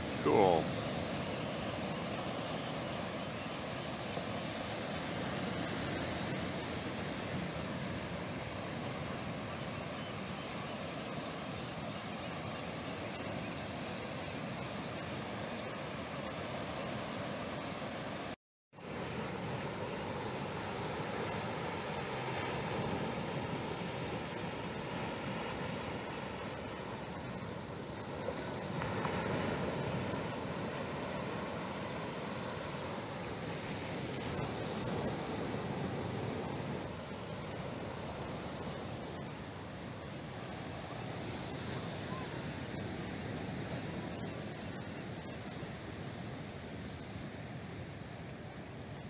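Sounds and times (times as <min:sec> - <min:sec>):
ocean surf breaking: 0:00.0 - 0:09.5, 0:18.8 - 0:44.2
wind: 0:00.0 - 0:49.0.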